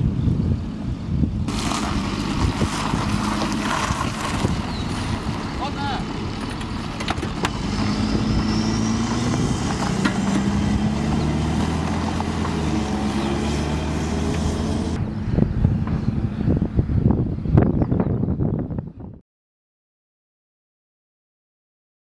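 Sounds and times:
diesel engine pulling away: 0:00.0 - 0:16.9
wind rumble on microphone: 0:00.0 - 0:19.2.

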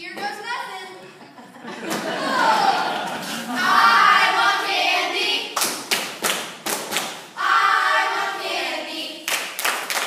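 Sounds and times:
voices singing: 0:01.9 - 0:05.6, 0:07.4 - 0:09.3
echoing percussive hits: 0:05.5 - 0:07.4.

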